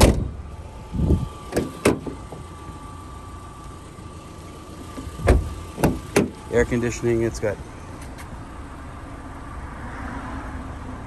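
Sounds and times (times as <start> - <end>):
car door clicks: 0.0 - 0.3, 1.4 - 2.8, 4.8 - 6.4
car door thump: 0.0 - 0.4, 1.2 - 2.8, 4.8 - 6.4.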